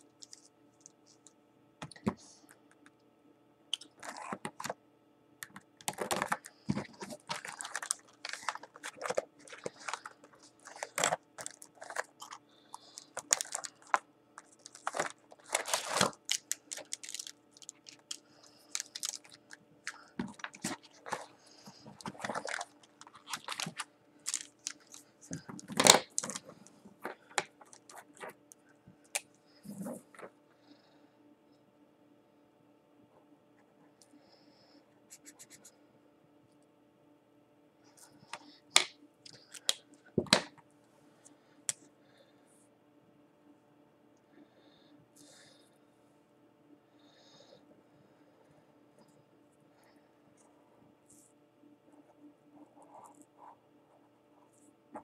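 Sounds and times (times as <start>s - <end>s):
faint steady hum: 0.0s - 55.0s
plastic crinkling: 3.8s - 4.8s, 5.4s - 28.4s
markers clicking and rattling: 5.5s - 21.2s.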